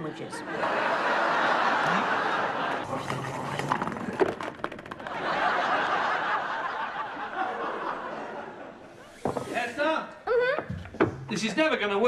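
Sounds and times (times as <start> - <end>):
audience laughing: 0.2 - 4.2, 5.0 - 9.2.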